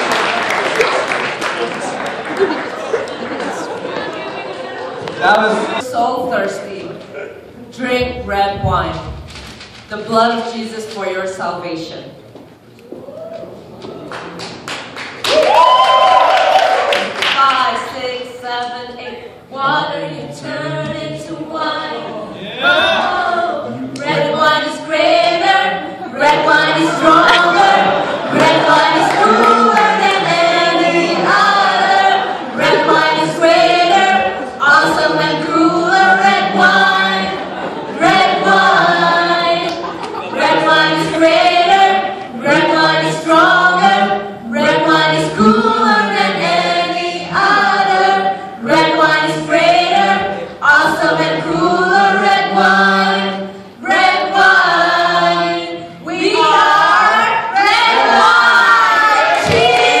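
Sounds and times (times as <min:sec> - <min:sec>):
mixed voices singing a cappella: 0:17.5 - 1:00.0.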